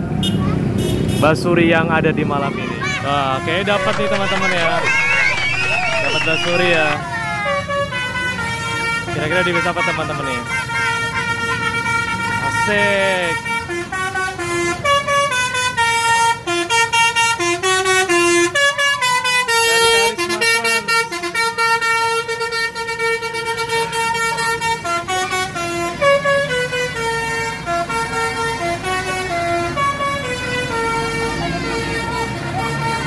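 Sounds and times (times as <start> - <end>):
multi-tone bus air horn melody: 7.0 - 33.0.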